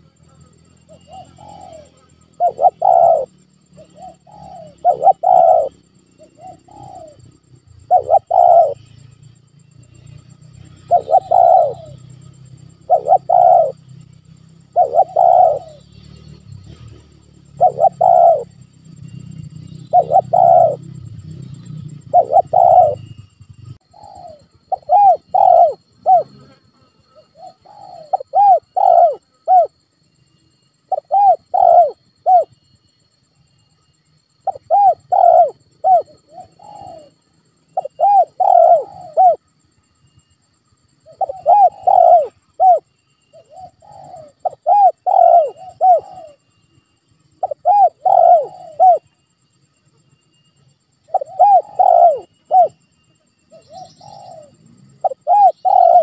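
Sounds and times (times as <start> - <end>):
dove cooing: 0.9 - 9.0, 10.6 - 13.9, 14.6 - 15.8, 16.6 - 18.6, 19.6 - 26.5, 27.1 - 29.8, 30.9 - 32.5, 34.4 - 39.4, 41.0 - 46.5, 47.4 - 49.1, 51.1 - 52.8, 53.5 - 56.0.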